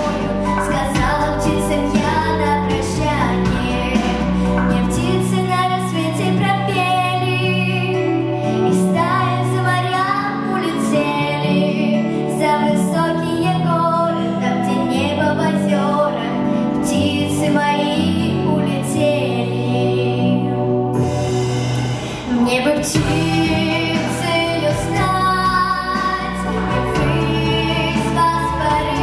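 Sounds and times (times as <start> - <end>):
instrumental accompaniment: 0.0 - 13.1, 19.5 - 29.0
girl singing into a microphone: 0.0 - 20.8, 22.3 - 29.0.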